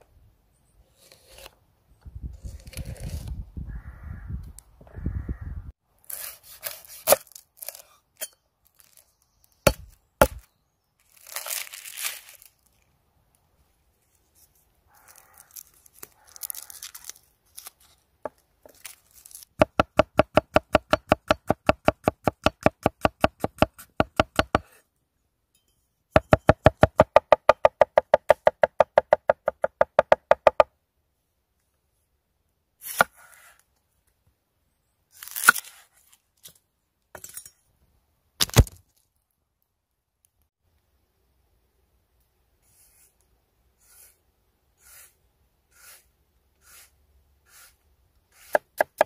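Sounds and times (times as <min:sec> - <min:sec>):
garlic skins crinkling: 0:08.6 - 0:09.6, 0:11.0 - 0:12.9, 0:14.9 - 0:18.0, 0:18.7 - 0:19.6
cleaver chopping on wooden board: 0:09.7 - 0:10.4, 0:19.6 - 0:24.7, 0:26.2 - 0:30.7, 0:48.4 - 0:49.0.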